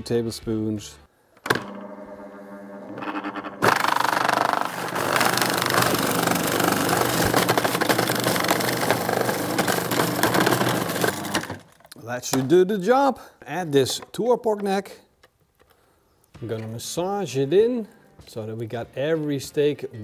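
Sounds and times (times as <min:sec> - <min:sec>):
food processor blade pureeing: 0:02.9 - 0:11.7.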